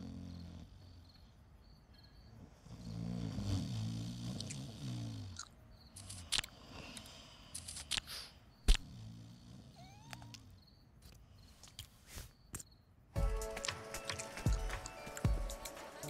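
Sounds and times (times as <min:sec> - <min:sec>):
small clicks and squeaks: 0:05.8 - 0:08.8, 0:09.8 - 0:12.9.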